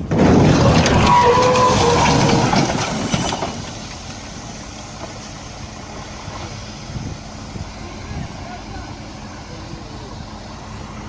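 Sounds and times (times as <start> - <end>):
loud clatter: 0.0 - 4.2
outdoor noise: 0.0 - 11.0
vehicle engine idling: 3.0 - 11.0.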